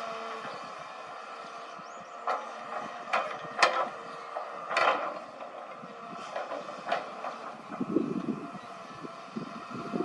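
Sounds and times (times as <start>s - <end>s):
excavator running under load: 0.0s - 10.0s
metallic clanks and scrapes: 2.3s - 7.6s.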